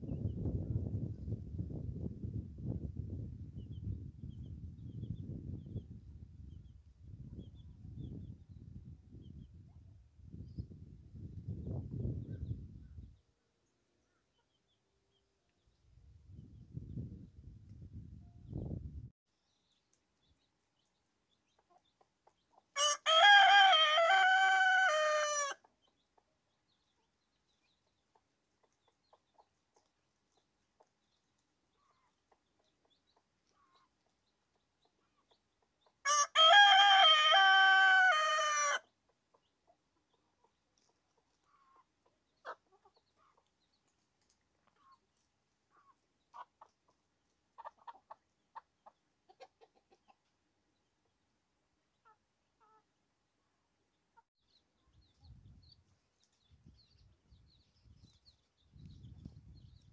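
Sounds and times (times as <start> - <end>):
faint chicken calls: 21.4 - 27.2, 31.7 - 50.4, 51.9 - 56.6
rooster crowing: 22.8 - 25.6, 36.1 - 38.8.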